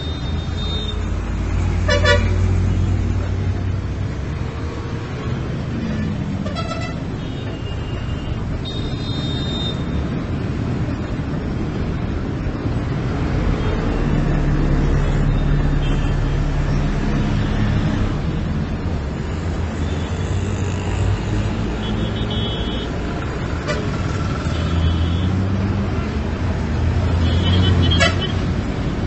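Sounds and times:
vehicle engines humming: 0.0s - 29.0s
car horn toots: 1.9s - 2.4s, 27.2s - 28.4s.

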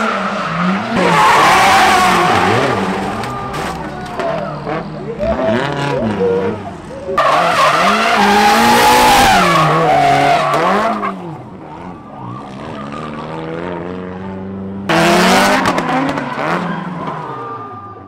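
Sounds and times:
car engines revving: 0.0s - 18.0s.

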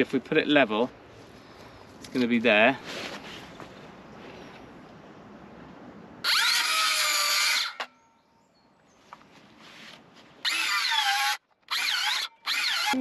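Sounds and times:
circular saw cutting wood: 6.2s - 7.9s, 10.4s - 13.0s.

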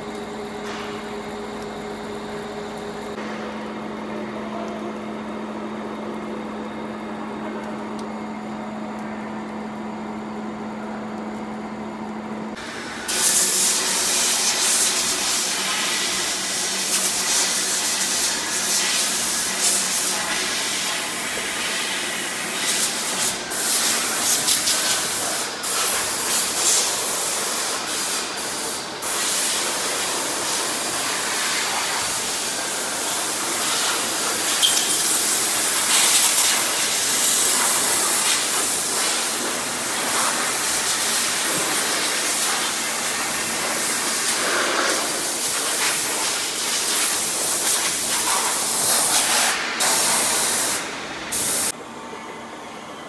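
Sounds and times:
lathe cutting steel with hiss: 12.6s - 51.7s.

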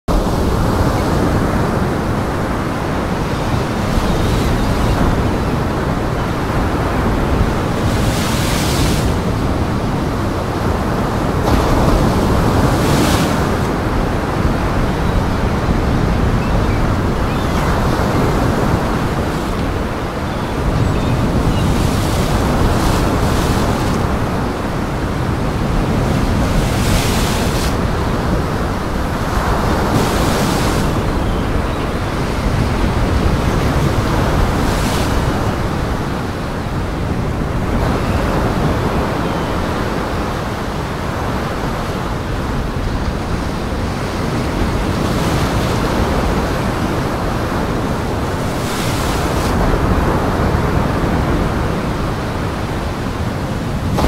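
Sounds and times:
waves breaking: 0.1s - 54.0s.

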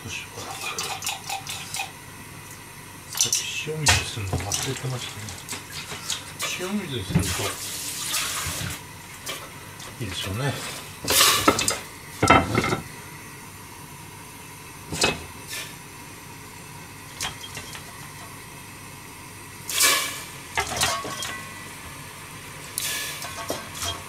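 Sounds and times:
pots and utensils clattering: 0.4s - 2.0s, 3.1s - 12.9s, 14.9s - 15.6s, 17.1s - 18.4s, 19.7s - 21.8s, 22.8s - 24.0s.

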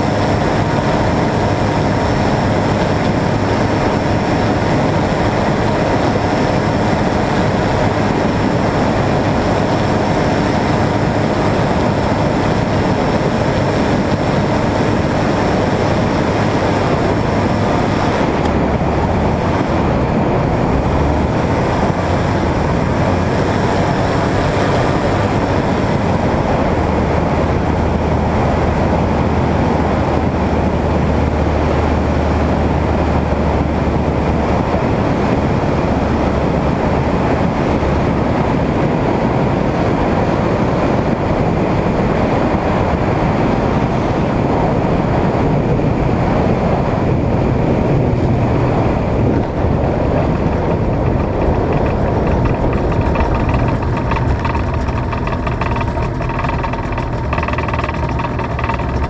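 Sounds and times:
ultralight engine and propeller: 0.0s - 59.0s
low steady hum: 48.0s - 59.0s.

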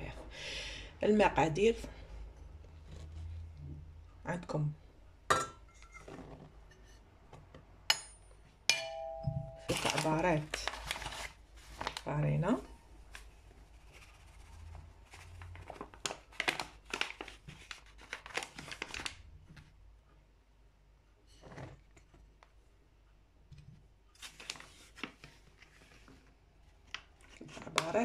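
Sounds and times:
packaging crinkling: 9.7s - 12.1s, 15.2s - 19.2s.

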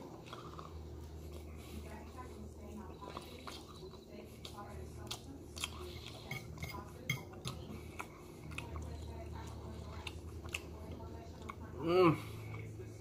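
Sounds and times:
cutlery scraping a ceramic plate: 6.2s - 7.3s.

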